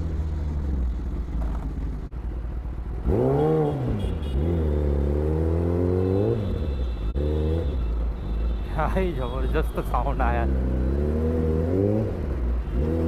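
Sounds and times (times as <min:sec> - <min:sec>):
motorcycle engine revving: 0:00.0 - 0:07.8, 0:10.4 - 0:13.0.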